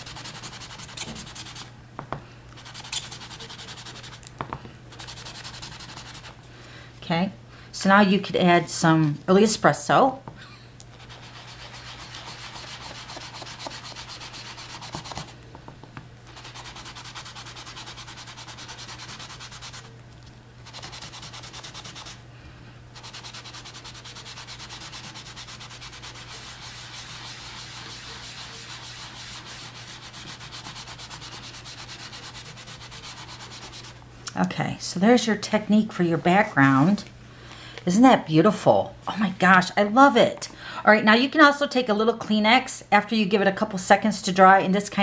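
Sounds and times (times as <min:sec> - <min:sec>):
sponge rubbing on tape: 0:00.0 - 0:01.7, 0:02.6 - 0:04.2, 0:04.9 - 0:06.4, 0:11.0 - 0:15.4, 0:16.3 - 0:19.9, 0:20.6 - 0:22.2, 0:23.0 - 0:34.0.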